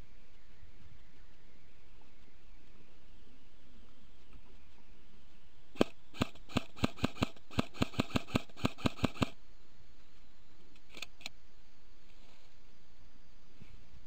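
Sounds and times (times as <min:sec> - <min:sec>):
airsoft rifle shots: 0:05.8 - 0:09.4.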